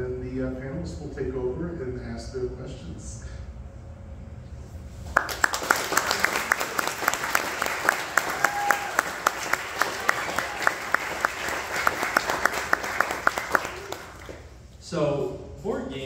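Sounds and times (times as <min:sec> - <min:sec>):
audience applauding: 0:05.2 - 0:14.5.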